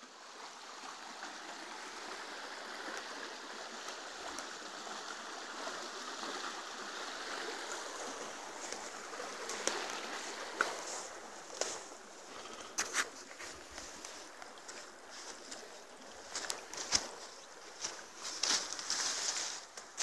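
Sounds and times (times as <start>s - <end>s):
stream rippling over stones: 0.0s - 20.0s.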